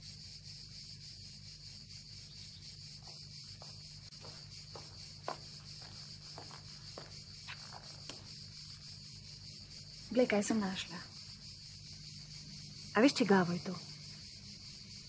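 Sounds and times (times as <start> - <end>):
insects chirring: 0.0 - 15.0
light footsteps: 3.0 - 8.8.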